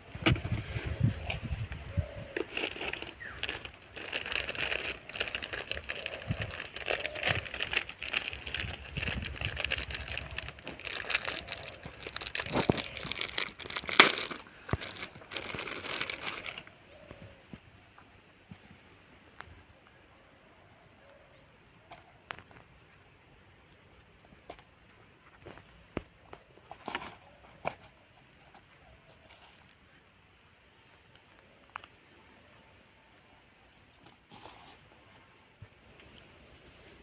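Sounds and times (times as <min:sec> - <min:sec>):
plastic bag crinkling: 0:02.4 - 0:16.7.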